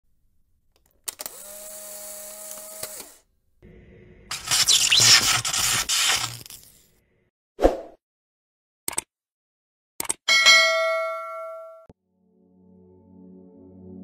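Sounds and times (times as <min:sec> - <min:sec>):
camera motor whirring: 0:01.2 - 0:03.2.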